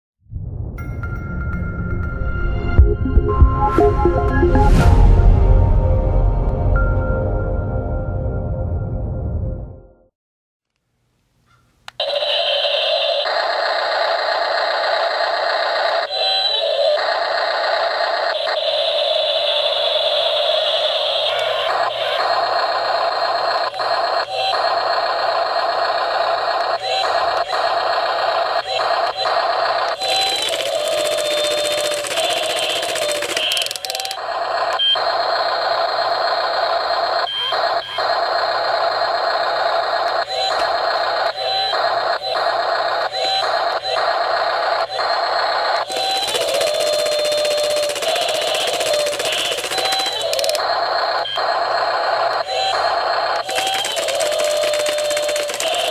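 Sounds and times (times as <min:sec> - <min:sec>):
toy excavator harsh whirring: 0:13.9 - 0:34.9, 0:43.2 - 0:55.9
toy breaker hammer buzzing on ice: 0:29.8 - 0:34.3, 0:45.8 - 0:50.7, 0:53.4 - 0:55.9.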